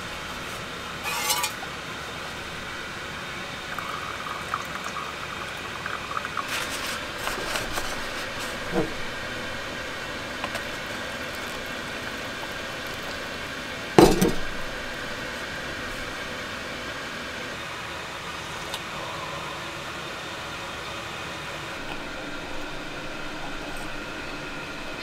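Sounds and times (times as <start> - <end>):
steady background hum: 0.0 - 25.0
tableware clinking on table: 1.0 - 1.6.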